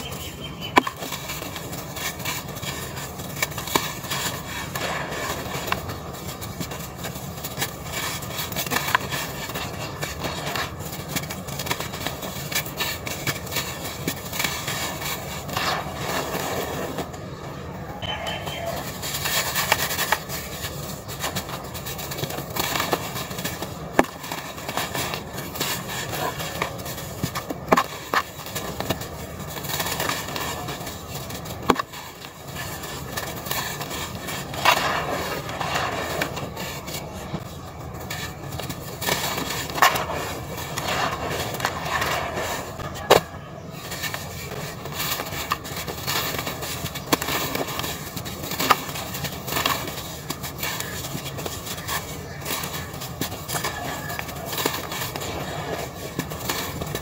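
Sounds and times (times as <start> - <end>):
hands crumbling dry dirt: 18.0 - 57.0.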